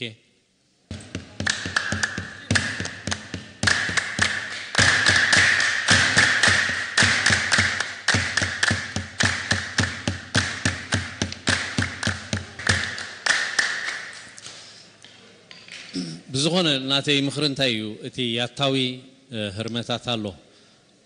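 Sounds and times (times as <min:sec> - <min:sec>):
hands drumming on box drum: 0:00.9 - 0:13.8.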